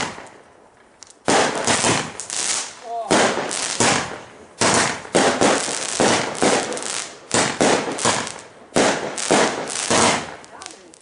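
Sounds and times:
fireworks bangs: 0:00.0 - 0:00.4, 0:01.2 - 0:11.0
crackling firework sparks: 0:00.0 - 0:11.0.

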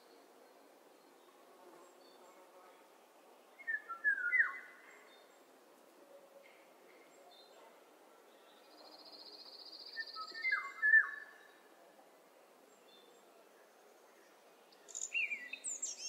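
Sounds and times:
songbirds singing: 0:03.6 - 0:05.5, 0:13.9 - 0:16.0.

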